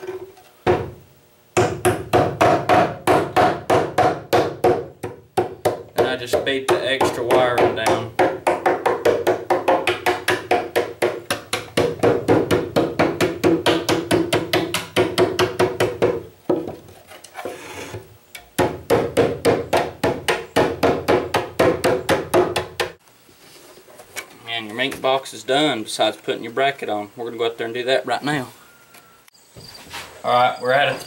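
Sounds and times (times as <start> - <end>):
hammer striking wooden box: 1.6 - 16.8, 18.6 - 23.0.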